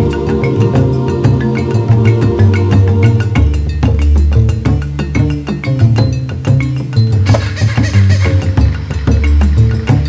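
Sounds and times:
low bass line: 0.0 - 10.0
music with percussive beat: 0.0 - 10.0.

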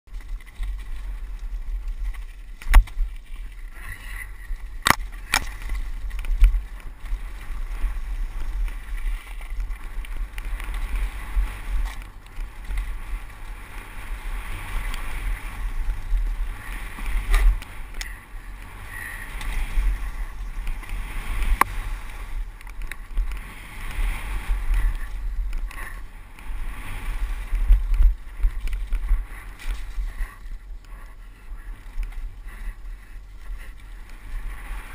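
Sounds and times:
bike knocks and rattles: 0.1 - 30.4
tyres rumbling on loose stones: 0.1 - 34.9
wind buffeting microphone: 0.1 - 34.9.

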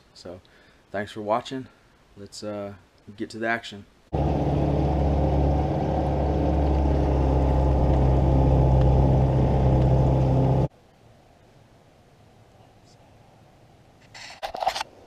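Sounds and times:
outboard motor running: 4.1 - 10.7.

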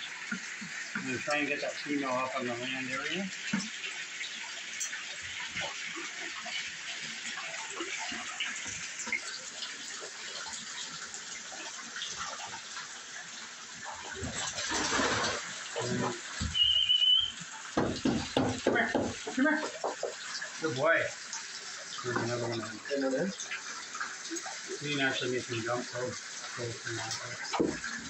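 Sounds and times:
water running into pool: 0.0 - 28.0
alligator splashing through water: 14.2 - 16.9
high squeak: 16.5 - 17.4.

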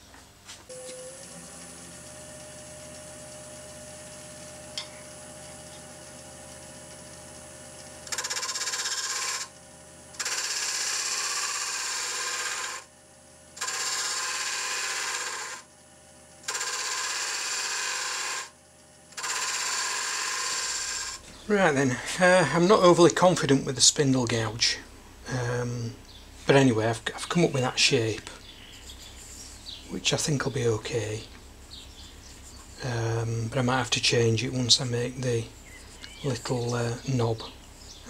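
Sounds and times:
gouge cutting spinning wood: 0.7 - 9.6, 10.2 - 12.9, 13.6 - 15.7, 16.4 - 21.3
wood lathe humming: 0.7 - 23.5, 26.4 - 38.0.

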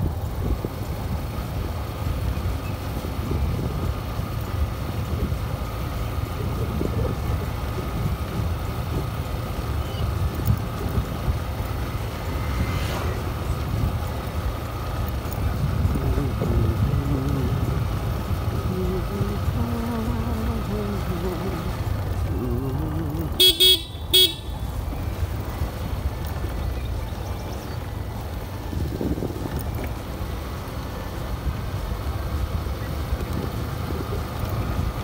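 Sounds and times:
motorcycle engine and road rumble: 0.0 - 35.0
wind buffeting microphone: 6.3 - 23.4, 24.7 - 30.5.

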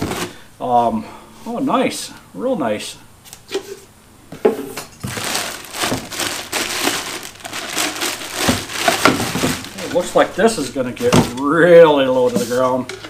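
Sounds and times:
plastic bag crinkling: 5.0 - 11.3.

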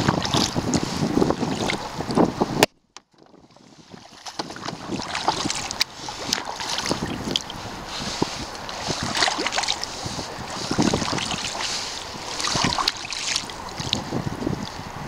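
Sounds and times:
kayak paddle splashing: 0.0 - 15.0
wind buffeting microphone: 0.0 - 15.0.

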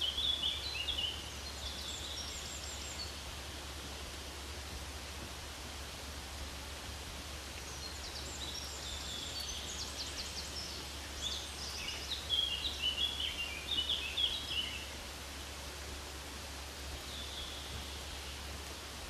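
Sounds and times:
birds chirping and trilling: 0.0 - 3.3, 7.6 - 15.0
steady hiss: 0.0 - 19.0.

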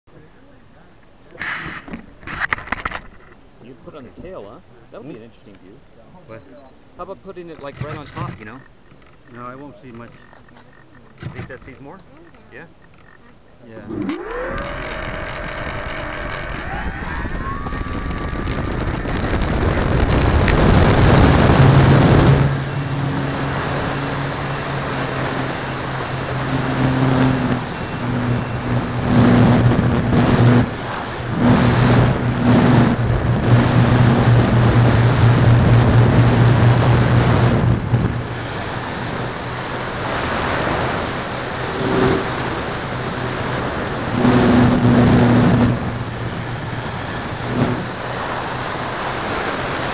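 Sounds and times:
model plane propeller hum: 7.3 - 49.9
wind rush on microphone: 13.8 - 49.9.

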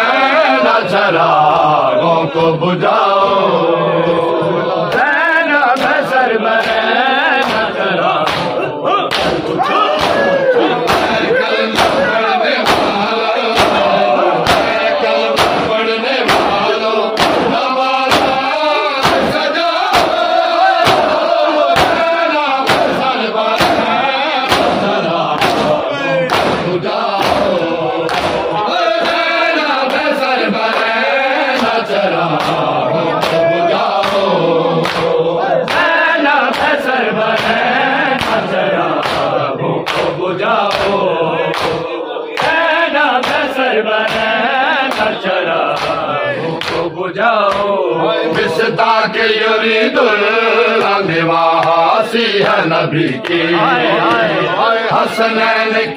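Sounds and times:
men chanting in chorus: 0.0 - 55.9
chest-beating slaps: 5.8 - 6.8, 7.4 - 29.2, 30.7 - 46.0, 46.6 - 46.9, 47.5 - 47.7, 51.6 - 51.8.

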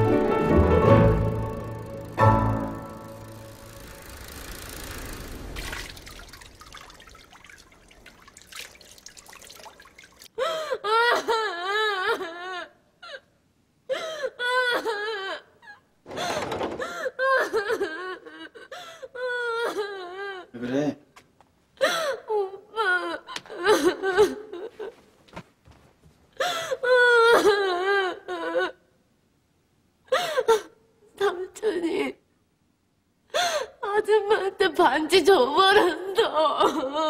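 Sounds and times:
girl crying hard: 10.4 - 13.3, 13.9 - 15.9, 16.9 - 20.5, 21.8 - 24.9, 26.4 - 28.8, 35.8 - 37.0.

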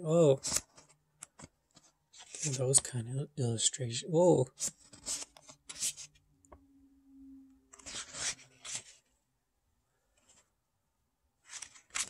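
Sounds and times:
paper pages turning: 0.4 - 2.9, 4.5 - 6.2, 7.7 - 9.0, 11.4 - 12.0
faint low hum: 6.1 - 11.3.

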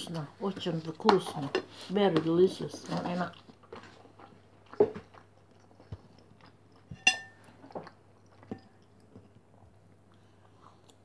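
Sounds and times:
soft chewing: 0.0 - 11.0
fork clinking on ceramic plate: 6.9 - 7.4.

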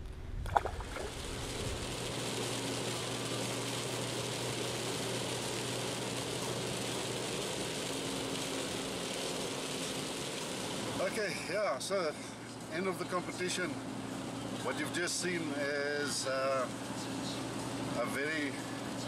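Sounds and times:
low engine hum: 0.0 - 19.0
hiss of wet road and rain: 1.0 - 12.7.

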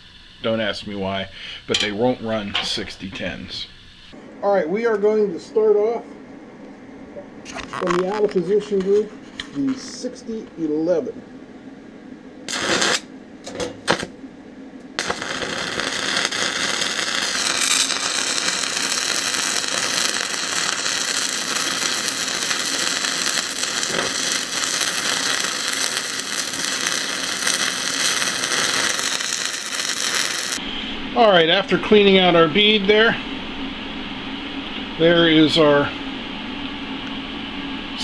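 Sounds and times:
welding arc sputtering: 12.5 - 14.2, 14.9 - 30.6.

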